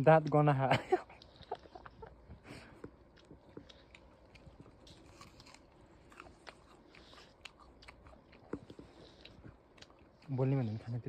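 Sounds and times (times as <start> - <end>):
person chewing crisp apple: 0.2 - 11.0.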